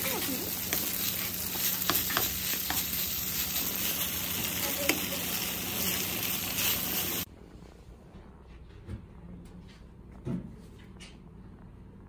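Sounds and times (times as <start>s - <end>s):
rice sizzling in a frying pan: 0.0s - 7.3s.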